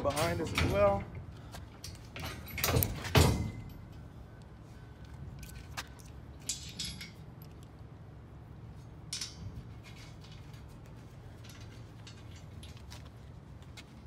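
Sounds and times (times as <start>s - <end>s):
metal parts knocking and scraping: 6.4s - 7.7s, 9.1s - 13.4s.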